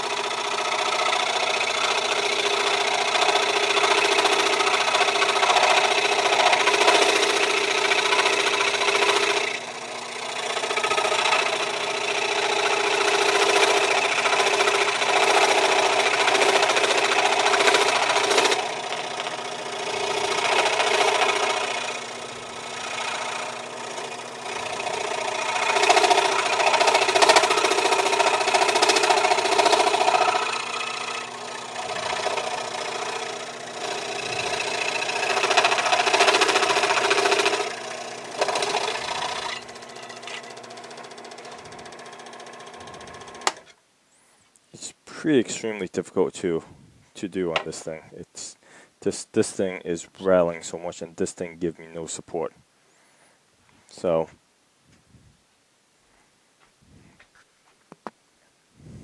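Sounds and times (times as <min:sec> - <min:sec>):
scroll saw cutting wood: 0:00.0 - 0:43.8.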